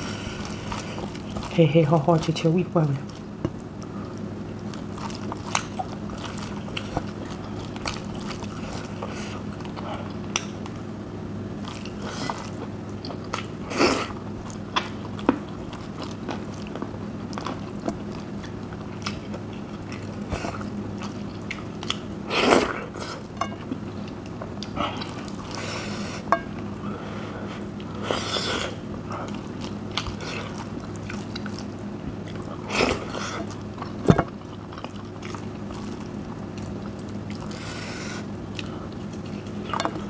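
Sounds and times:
person chewing with mouth smacks: 0:00.0 - 0:01.6, 0:03.0 - 0:10.8, 0:11.6 - 0:26.7, 0:27.4 - 0:40.0.

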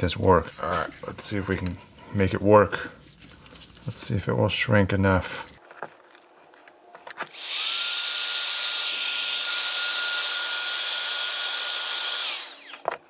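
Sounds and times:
heat gun blowing and whining: 0:07.2 - 0:13.0.

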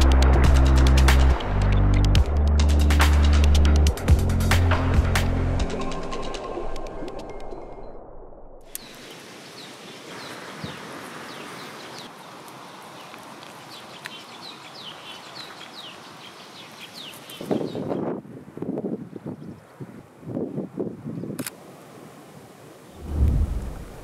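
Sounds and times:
outdoor hiss: 0:08.7 - 0:15.3
small birds chirping: 0:08.7 - 0:18.0.

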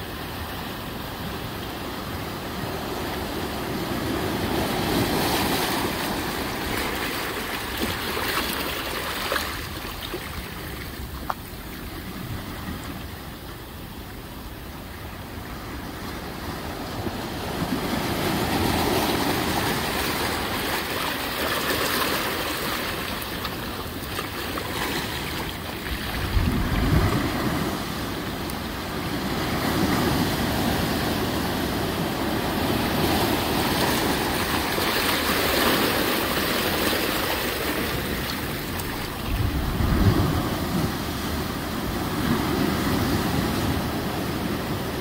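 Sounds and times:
ocean waves breaking on beach: 0:00.0 - 0:45.0.

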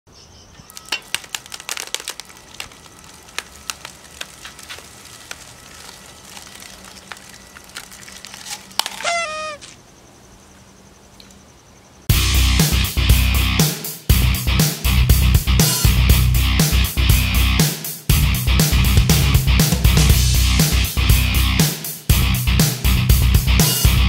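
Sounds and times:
mechanical claw clicking on foil: 0:00.7 - 0:09.1
heavy metal music: 0:12.1 - 0:24.0.

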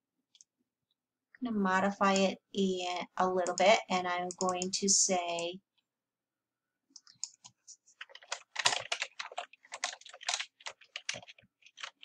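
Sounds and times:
computer keyboard typing: 0:02.9 - 0:05.6, 0:06.9 - 0:12.0.

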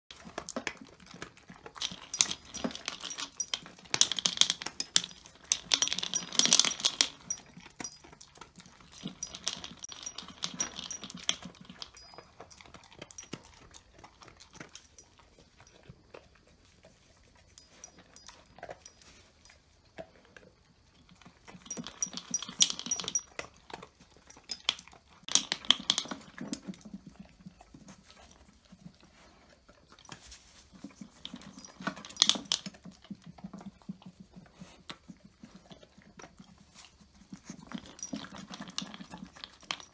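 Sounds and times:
dry feed rattling in plastic cup: 0:00.1 - 0:15.0, 0:21.0 - 0:28.4, 0:30.0 - 0:34.2
dog crunching food: 0:00.1 - 0:34.3, 0:34.9 - 0:39.9.

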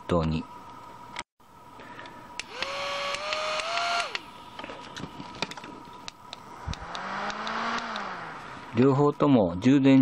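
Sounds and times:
fan motor whine: 0:00.0 - 0:10.0
fan motor hum spinning up: 0:01.5 - 0:09.2.

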